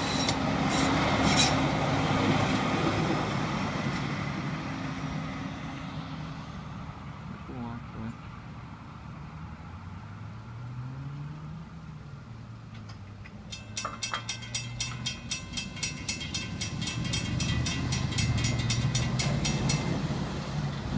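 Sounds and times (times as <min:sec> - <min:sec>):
railroad crossing bell ringing: 0:00.0 - 0:01.7, 0:13.4 - 0:20.9
vehicle engines rumbling: 0:00.0 - 0:20.9.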